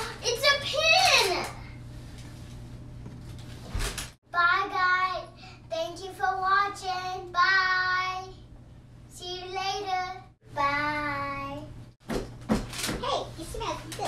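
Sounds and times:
girl singing: 0:04.4 - 0:08.4, 0:09.2 - 0:11.7.

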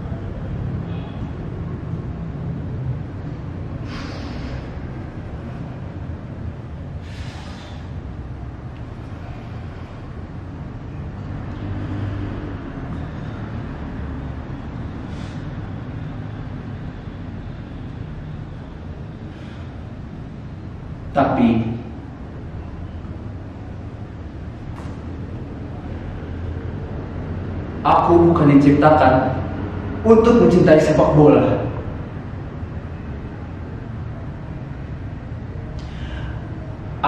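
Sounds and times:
steady low rumble: 0:00.0 - 0:37.0
man's sharp breaths: 0:03.1 - 0:10.8, 0:14.8 - 0:20.7, 0:35.7 - 0:37.0.

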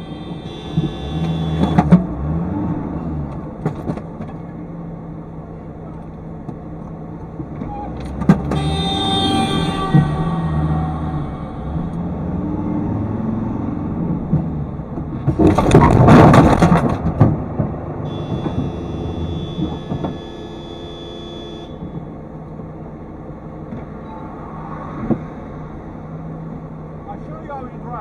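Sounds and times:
car engine idling: 0:00.0 - 0:02.4, 0:03.3 - 0:13.2
car crash crunching clatter: 0:03.3 - 0:04.6, 0:14.2 - 0:20.4
steady high-pitched tone: 0:08.6 - 0:12.8.

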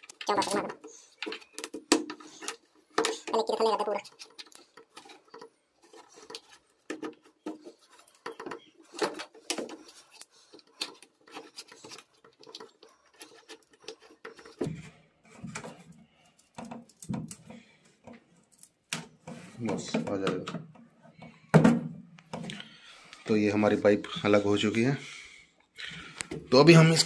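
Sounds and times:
plastic hose clicking and scraping: 0:00.0 - 0:23.3, 0:26.0 - 0:27.0.

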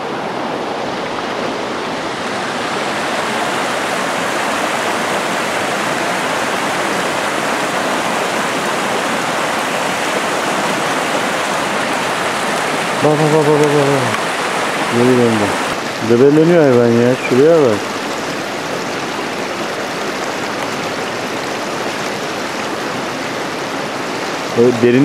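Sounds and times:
creek rushing over rocks: 0:00.0 - 0:25.0
man's voice: 0:13.0 - 0:14.2, 0:14.9 - 0:17.8, 0:24.6 - 0:25.0.

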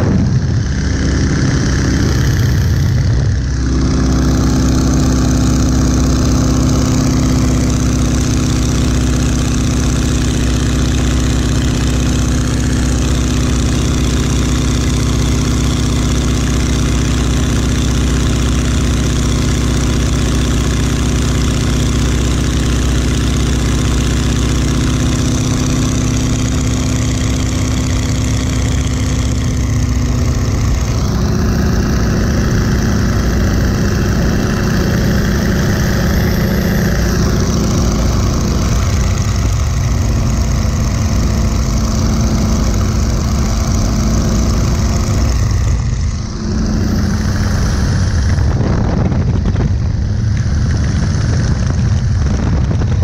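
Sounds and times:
propeller plane engine droning: 0:00.0 - 0:53.0
rush of airflow: 0:41.4 - 0:53.0.

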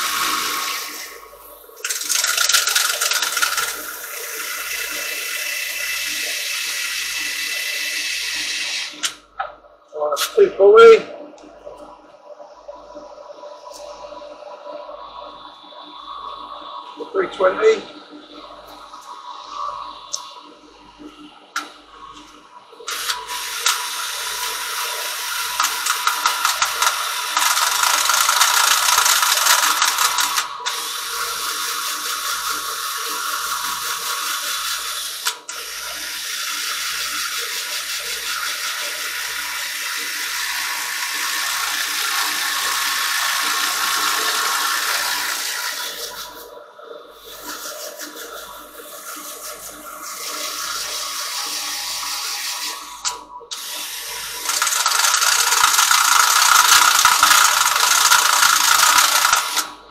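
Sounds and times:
drill sanding wood: 0:23.0 - 0:35.3, 0:35.9 - 0:46.0, 0:50.3 - 0:59.7.

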